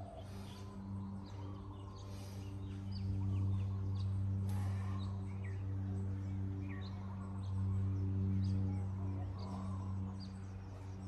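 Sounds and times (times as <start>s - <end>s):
birds chirping: 0.0s - 11.0s
low hum: 0.0s - 11.0s.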